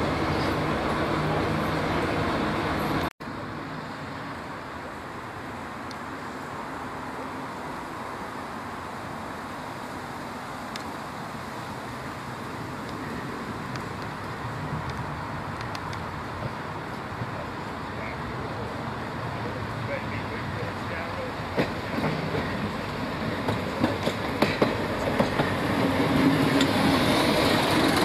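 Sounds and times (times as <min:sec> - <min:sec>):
diesel train approaching: 0:00.0 - 0:09.4, 0:11.5 - 0:28.0.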